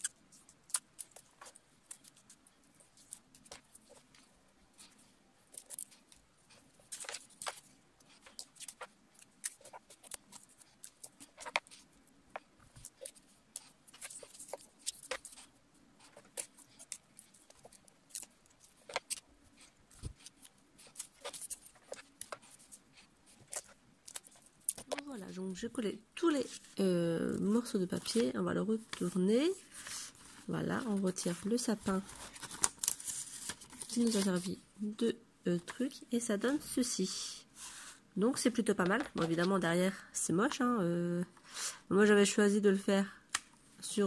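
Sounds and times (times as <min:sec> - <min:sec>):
paper crinkling and rustling: 0:00.0 - 0:25.4, 0:26.2 - 0:34.6, 0:38.8 - 0:39.6.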